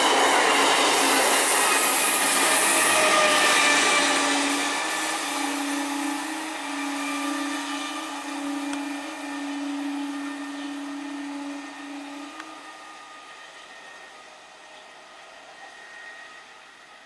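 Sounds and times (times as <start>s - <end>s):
train electric hum: 0.0s - 17.0s
wheel and rail noise: 0.0s - 17.0s.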